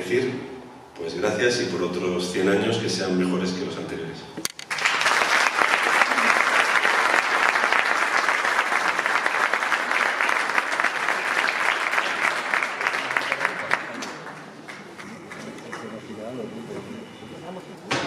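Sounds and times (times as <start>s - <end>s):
audience applauding: 4.6s - 16.6s.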